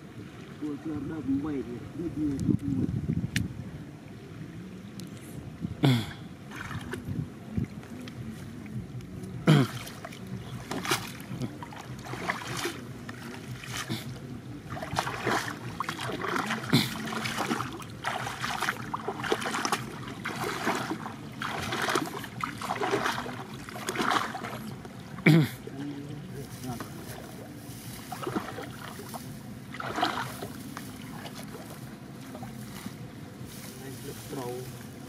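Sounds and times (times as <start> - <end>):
wading through water: 0.0 - 35.0.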